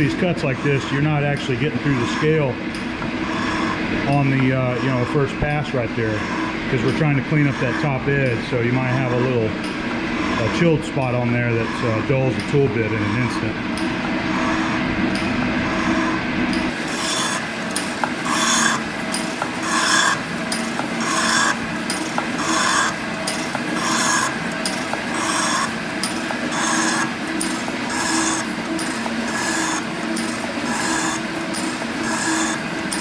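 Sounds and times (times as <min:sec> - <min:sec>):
machine hum: 0:00.0 - 0:33.0
metal shaper scraping cut: 0:06.1 - 0:07.9, 0:15.6 - 0:33.0.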